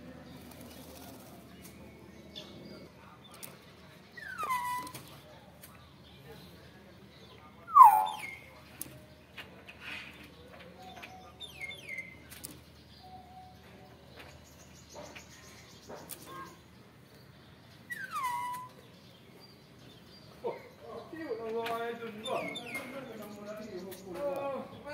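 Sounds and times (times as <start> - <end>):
myna whistled calls: 4.1 - 5.1, 7.7 - 8.6, 17.8 - 18.9.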